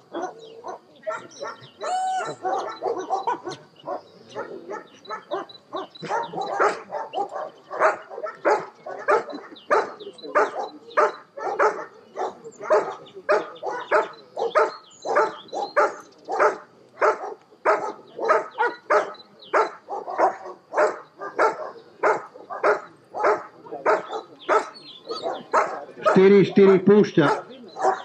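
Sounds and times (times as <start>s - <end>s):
dog barking: 0.0s - 28.0s.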